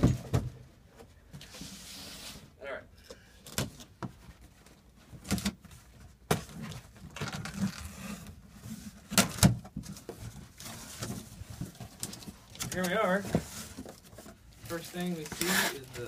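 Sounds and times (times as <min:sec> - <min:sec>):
cardboard rustling: 0:03.8 - 0:16.0
blade scraping through packing tape: 0:15.3 - 0:15.9.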